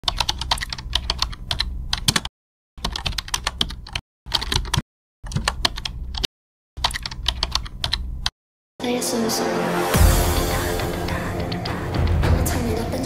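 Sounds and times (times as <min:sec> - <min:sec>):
keyboard typing clicks: 0:00.0 - 0:08.0.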